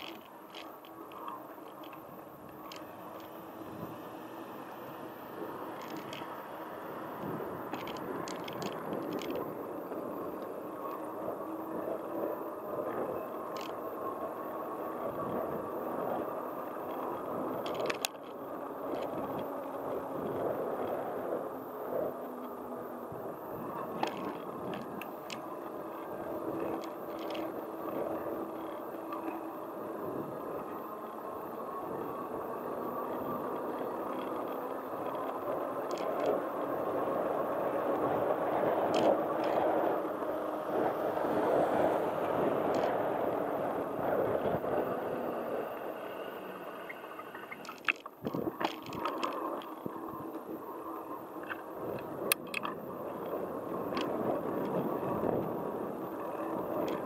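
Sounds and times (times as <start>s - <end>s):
wheels rolling on road: 0.0s - 57.0s
wind rushing over microphone: 0.0s - 57.0s
sharp clicks and knocks: 51.4s - 52.8s.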